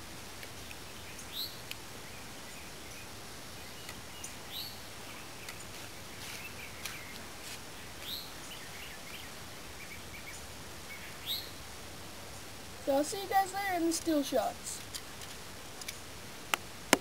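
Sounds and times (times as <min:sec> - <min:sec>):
background hiss: 0:00.0 - 0:17.0
bird chirping: 0:00.5 - 0:11.6.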